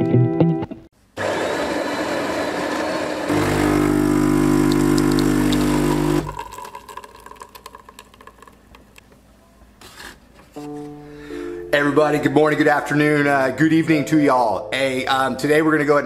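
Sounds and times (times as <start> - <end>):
coffee machine pump hum: 1.2 - 8.1
coffee grinder grinding: 1.2 - 8.9
coffee trickling into mug: 3.3 - 9.0.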